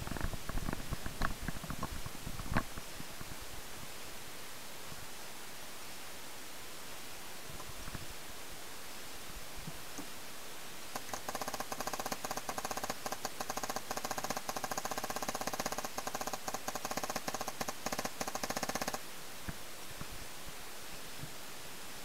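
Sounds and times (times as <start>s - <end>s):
paintball marker firing: 11.0s - 19.0s.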